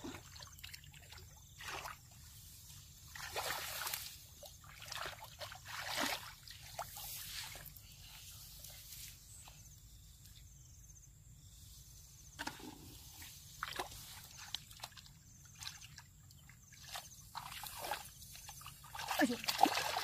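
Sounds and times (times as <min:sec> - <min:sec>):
shallow water splashing: 0:00.0 - 0:07.7, 0:13.6 - 0:20.0.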